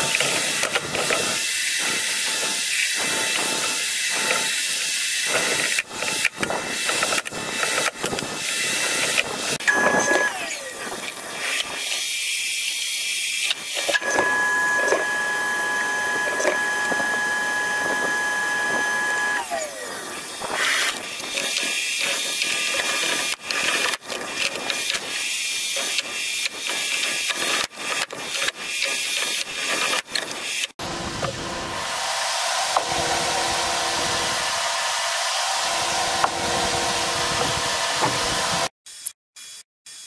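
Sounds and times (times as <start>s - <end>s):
table saw spinning down: 14.0s - 19.9s, 30.8s - 38.7s.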